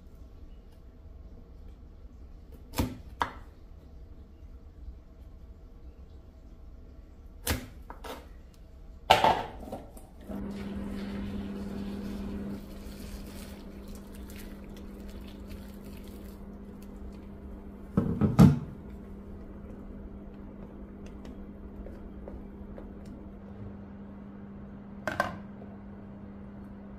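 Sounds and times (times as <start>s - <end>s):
steady low hum: 10.1s - 26.9s
water pouring into metal bowl: 10.4s - 17.3s.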